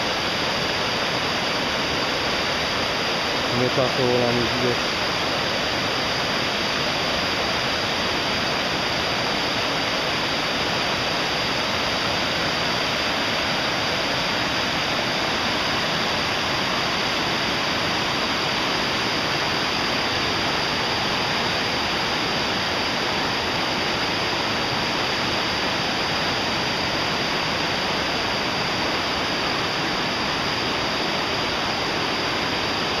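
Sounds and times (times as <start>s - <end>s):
stream rushing over boulders: 0.0s - 33.0s.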